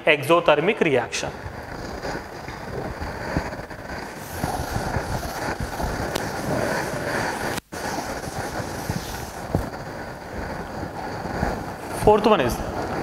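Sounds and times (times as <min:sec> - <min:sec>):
chalkboard being wiped: 0:03.2 - 0:09.8.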